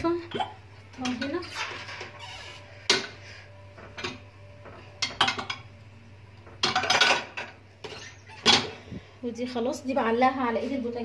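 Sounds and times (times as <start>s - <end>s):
dishes clattering: 2.9s - 3.2s, 3.8s - 5.7s, 6.4s - 8.8s
dishes clinking on counter: 3.8s - 5.7s, 6.5s - 8.8s.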